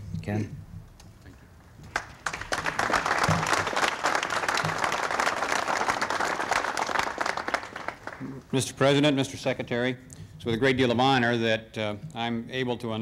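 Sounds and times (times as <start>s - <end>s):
crowd applauding: 1.9s - 8.5s.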